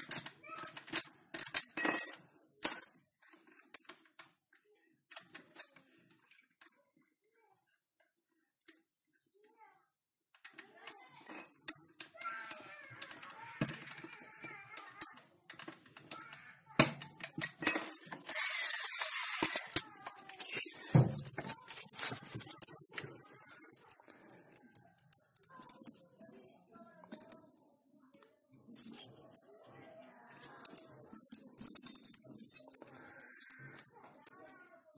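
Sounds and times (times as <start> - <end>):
handling clicks and knocks: 19.4 - 27.5.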